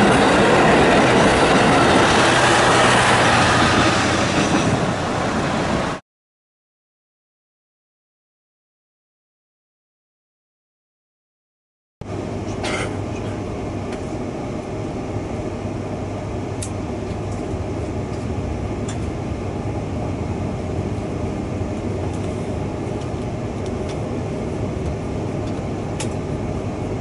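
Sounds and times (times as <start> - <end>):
train wheels rumbling: 0.0 - 6.0.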